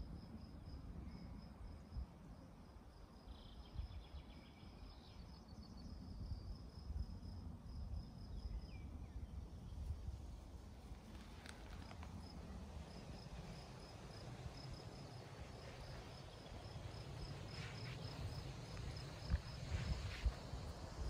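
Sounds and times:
insect chirping: 0:00.0 - 0:21.0.

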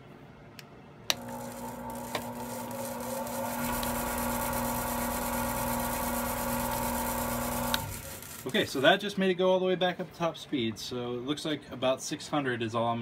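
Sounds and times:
lathe motor hum and whine: 0:01.1 - 0:08.8.

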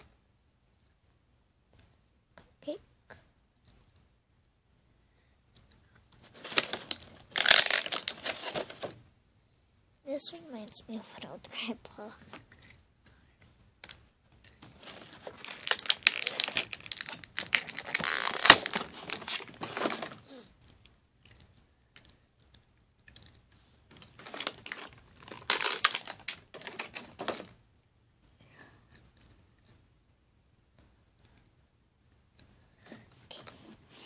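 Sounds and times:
plastic packaging crinkling: 0:06.2 - 0:08.9, 0:14.6 - 0:20.3, 0:24.0 - 0:27.5.

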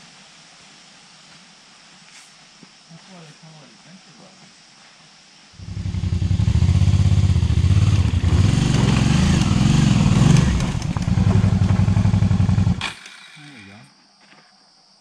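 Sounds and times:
motorcycle engine revving: 0:05.6 - 0:12.8.

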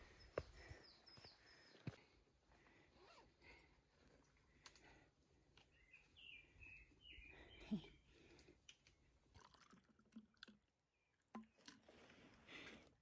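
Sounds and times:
faint bird chirps: 0:05.7 - 0:08.2
water pouring: 0:09.2 - 0:12.3.

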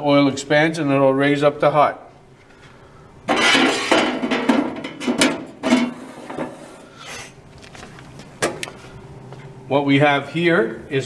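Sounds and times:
metal parts clanking and scraping: 0:03.3 - 0:07.3.

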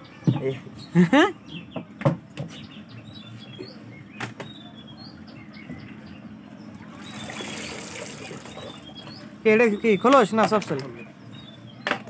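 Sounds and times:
small birds chirping: 0:00.0 - 0:12.0
water trickling: 0:06.9 - 0:09.1.

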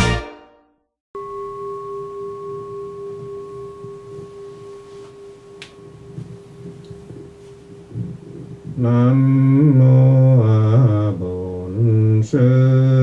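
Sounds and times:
bowl bell ringing: 0:01.2 - 0:07.9.

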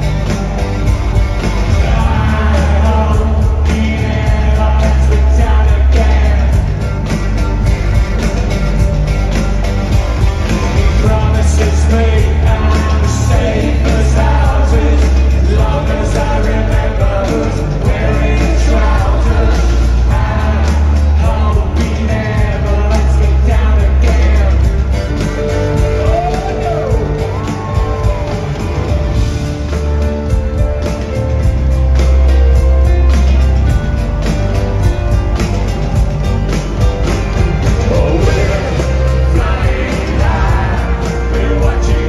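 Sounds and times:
arena crowd: 0:00.0 - 0:42.0
synth-rock band playing live: 0:00.0 - 0:42.0
lead singer singing: 0:01.4 - 0:07.2, 0:10.5 - 0:28.9, 0:37.5 - 0:42.0.

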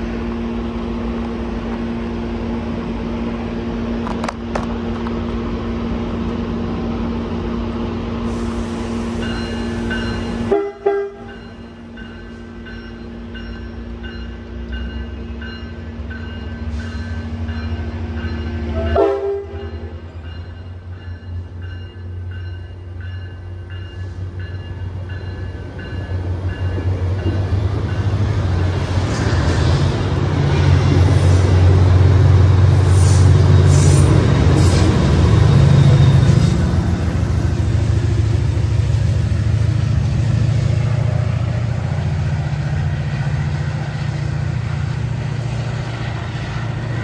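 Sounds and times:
diesel locomotive engine drone: 0:00.0 - 0:47.0
train horn: 0:08.3 - 0:11.4, 0:18.7 - 0:19.9.

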